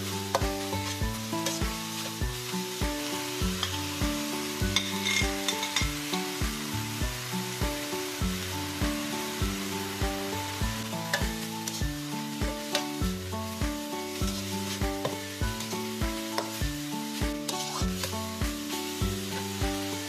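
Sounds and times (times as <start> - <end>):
background music with a beat: 0.0 - 20.0
food sizzling in a pan: 0.0 - 20.0
spatula scraping a pan: 0.8 - 2.2, 4.7 - 5.9, 17.2 - 18.1.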